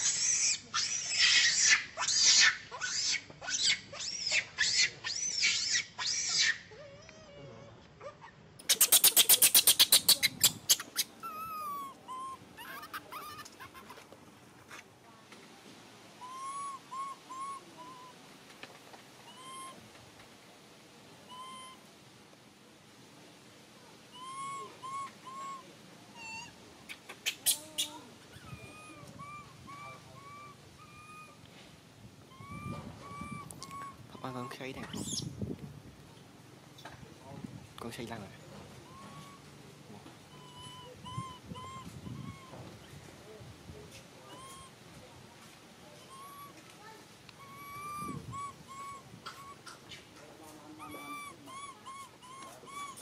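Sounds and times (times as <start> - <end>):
macaques harsh pulsed calls: 0.0 - 6.6, 8.6 - 13.9, 16.2 - 18.2, 19.2 - 19.8, 21.3 - 21.9, 24.1 - 31.4, 32.3 - 35.3, 38.8 - 39.5, 40.3 - 42.9, 44.2 - 44.8, 46.0 - 46.6, 47.3 - 53.0
macaques squeaky calls: 0.0 - 7.3, 8.0 - 14.1, 16.2 - 18.2, 19.2 - 19.8, 21.2 - 21.9, 24.1 - 31.4, 32.3 - 35.3, 38.8 - 39.6, 40.2 - 43.0, 44.2 - 44.8, 46.0 - 53.0
baby monkey whimpering coos: 0.0 - 14.0, 16.2 - 18.2, 19.2 - 19.8, 21.3 - 21.8, 24.1 - 26.6, 27.2 - 31.4, 32.3 - 35.3, 38.8 - 39.5, 40.2 - 43.0, 44.2 - 44.8, 46.0 - 46.6, 47.3 - 50.0, 50.7 - 53.0.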